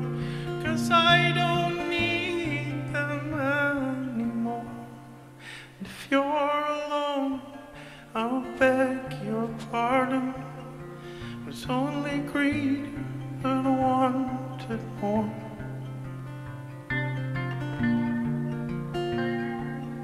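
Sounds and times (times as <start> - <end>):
man singing slow song: 0.0 - 15.9.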